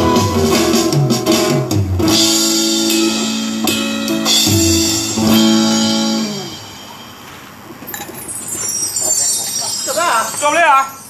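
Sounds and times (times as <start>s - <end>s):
guitar chords strummed: 0.0s - 7.0s
drums: 0.0s - 11.0s.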